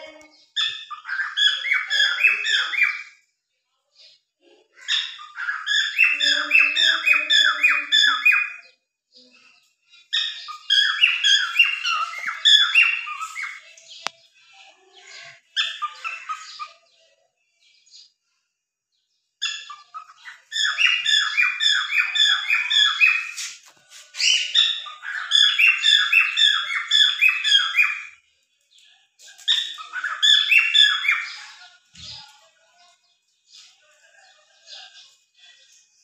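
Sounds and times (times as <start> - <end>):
cockatiel chirping: 0.6 - 3.1, 10.1 - 13.6, 19.4 - 23.6, 24.2 - 28.2, 29.4 - 31.5.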